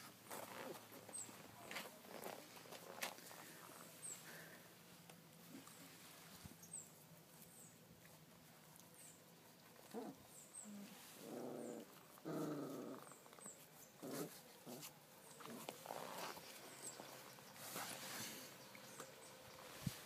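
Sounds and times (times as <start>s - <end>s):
puppies growling: 9.8s - 16.4s.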